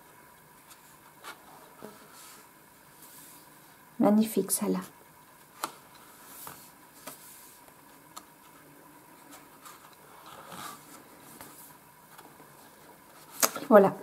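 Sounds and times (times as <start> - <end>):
cards sliding papery: 5.6 - 8.6, 9.2 - 13.7.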